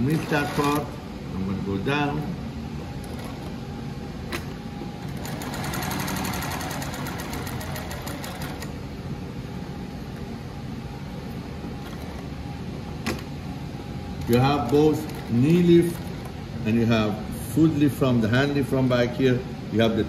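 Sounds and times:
sewing machine stitching: 0.0s - 0.9s, 5.0s - 8.7s.

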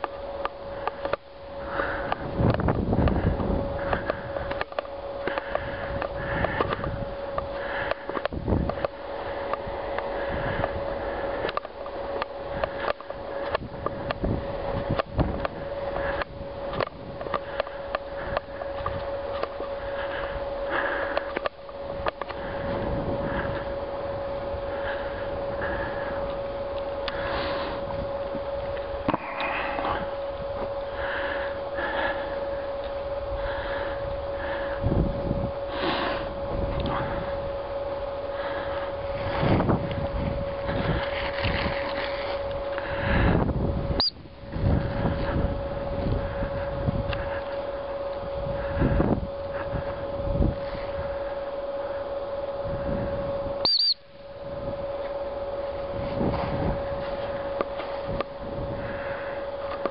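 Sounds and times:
faint hum: 0.0s - 59.9s
dog whistle peeps: 53.6s - 54.0s.

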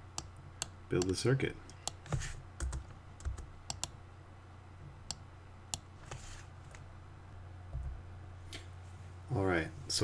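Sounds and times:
steady low hum: 0.0s - 10.0s
keyboard and mouse clicks: 0.2s - 4.0s.

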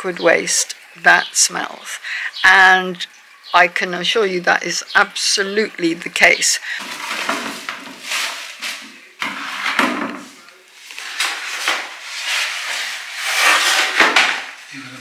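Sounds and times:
plastic bag rustling: 6.5s - 14.7s
paper packaging crinkling: 6.8s - 9.8s, 10.7s - 14.7s.

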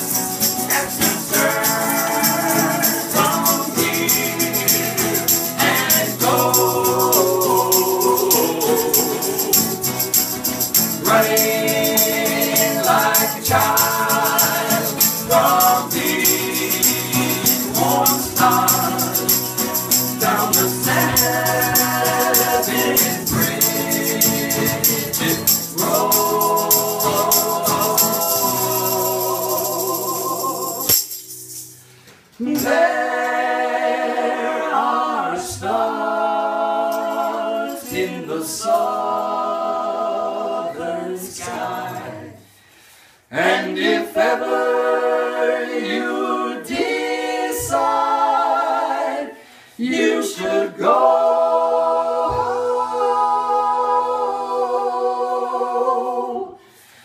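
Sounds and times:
men singing in close harmony: 0.0s - 31.0s, 32.4s - 42.4s, 43.3s - 56.6s
shaker rattling: 0.0s - 33.6s.

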